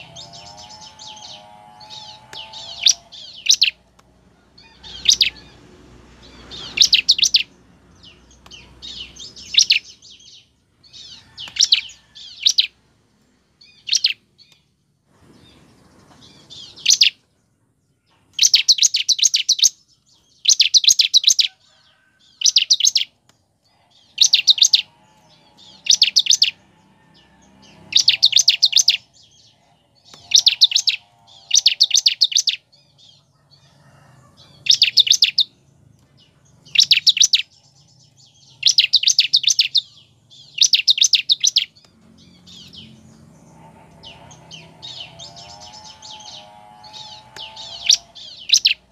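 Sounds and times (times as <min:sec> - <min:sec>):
bird chirping in rapid bursts: 0:00.0 - 0:04.0, 0:04.6 - 0:14.8, 0:15.4 - 0:17.3, 0:18.2 - 0:21.6, 0:22.2 - 0:26.6, 0:27.6 - 0:33.5, 0:34.4 - 0:48.9.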